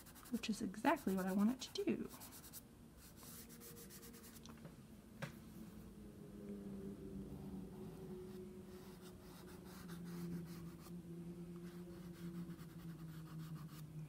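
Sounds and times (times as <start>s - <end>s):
chalk pastel scraping on paper: 0.0s - 4.4s, 8.3s - 10.9s, 11.6s - 13.9s
steady low hum: 0.0s - 14.0s.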